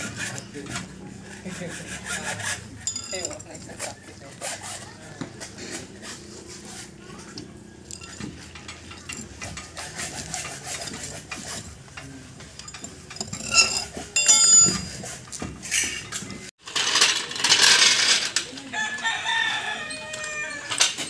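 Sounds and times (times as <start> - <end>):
metal tools clinking: 2.7 - 4.2, 7.2 - 18.6
metal clatter with ringing: 2.8 - 4.1, 7.2 - 18.5.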